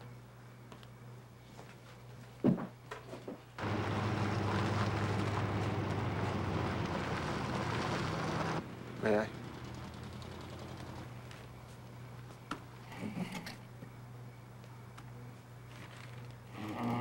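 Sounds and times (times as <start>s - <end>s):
vehicle engine and road noise: 3.6s - 12.2s.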